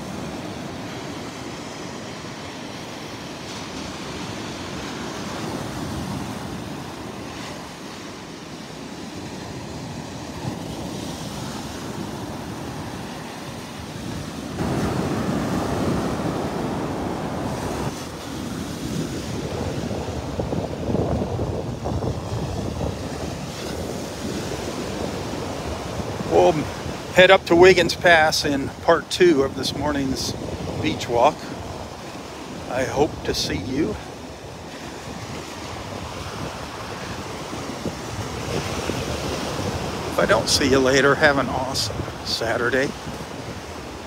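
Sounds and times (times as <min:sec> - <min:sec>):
small waves breaking on beach: 0:00.0 - 0:44.0
wind on microphone: 0:09.4 - 0:28.8, 0:29.5 - 0:44.0.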